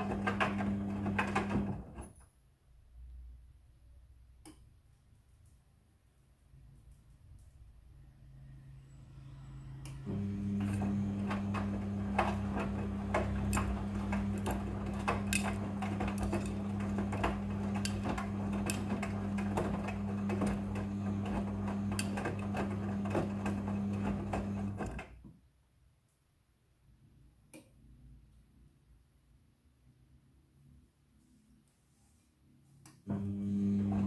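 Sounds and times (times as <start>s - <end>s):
washing machine motor hum: 0.0s - 2.0s, 9.2s - 25.2s, 33.0s - 34.0s.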